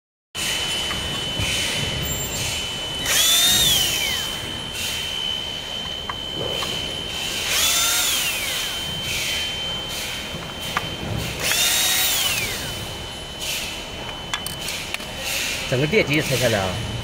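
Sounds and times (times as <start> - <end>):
cordless drill motor whining: 1.2 - 10.7, 11.4 - 13.0.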